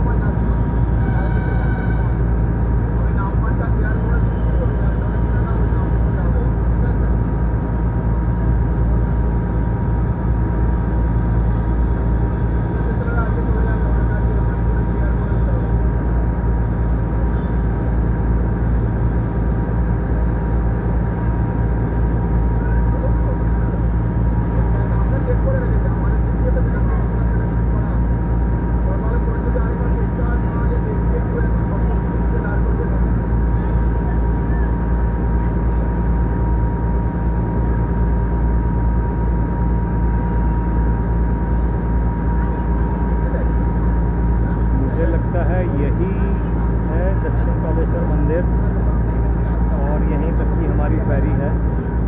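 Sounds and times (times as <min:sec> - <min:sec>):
faint steady whine: 0:00.0 - 0:52.0
ferry engine droning: 0:00.0 - 0:52.0.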